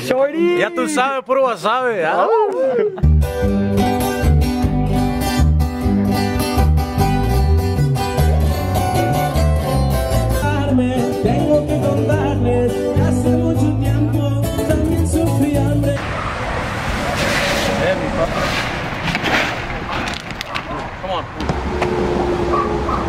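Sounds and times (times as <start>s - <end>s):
strummed acoustic guitars: 3.0s - 16.0s
bass line: 3.0s - 16.1s
person singing: 10.1s - 16.0s.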